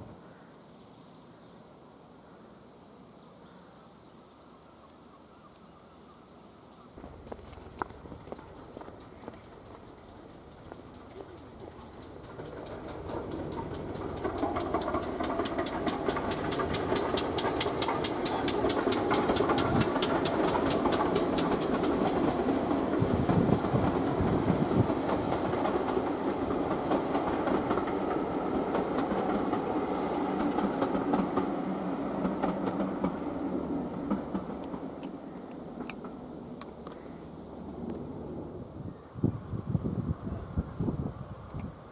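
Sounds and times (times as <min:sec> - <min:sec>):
steam locomotive chuffing: 0:07.0 - 0:36.2
train coaches rumbling past: 0:07.0 - 0:38.9.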